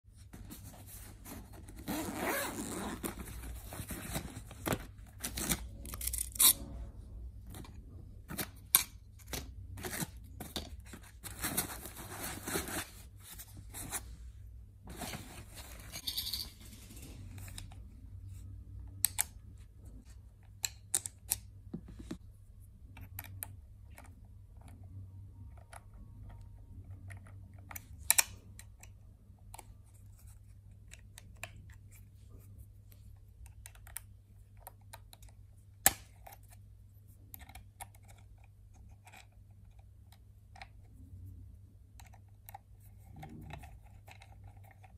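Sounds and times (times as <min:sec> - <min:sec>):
zipper on canvas bag opening: 0:01.8 - 0:03.3.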